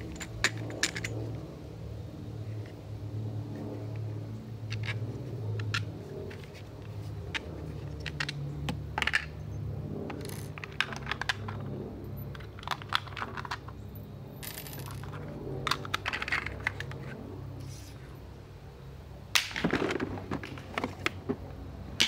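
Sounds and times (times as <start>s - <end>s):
plastic parts clicking and clattering: 0.0s - 1.2s, 4.7s - 5.0s, 5.6s - 9.4s, 10.1s - 11.7s, 12.3s - 13.8s, 14.4s - 17.2s, 19.4s - 21.5s
steady low hum: 0.0s - 12.6s, 13.6s - 22.0s.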